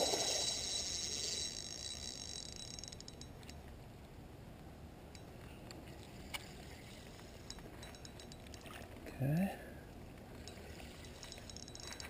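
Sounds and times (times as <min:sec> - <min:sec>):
fishing reel buzzing: 0:00.0 - 0:03.3, 0:10.4 - 0:12.0
reel clicks: 0:00.0 - 0:03.6, 0:07.1 - 0:08.7, 0:10.4 - 0:12.0.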